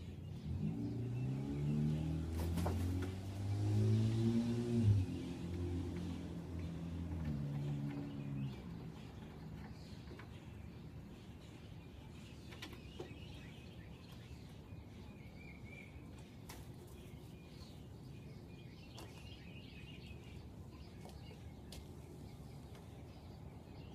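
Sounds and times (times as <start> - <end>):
high chirping and twittering: 6.5 - 23.9.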